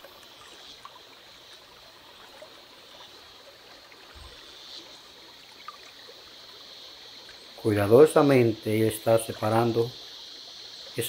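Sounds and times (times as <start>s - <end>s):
water trickling and lapping in pan: 0.0s - 7.7s.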